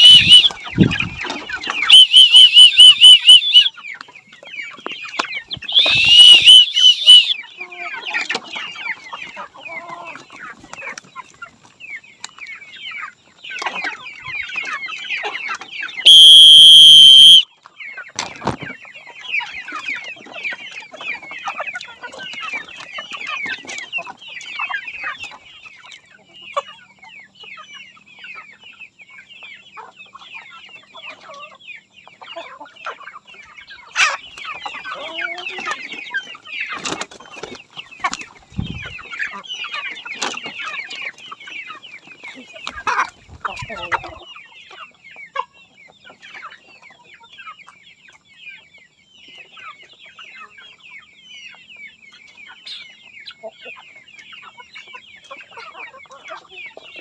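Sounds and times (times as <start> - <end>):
short high peeping calls: 0.0 - 4.0, 5.3 - 7.5, 15.8 - 17.4
chickens clucking: 0.0 - 57.0.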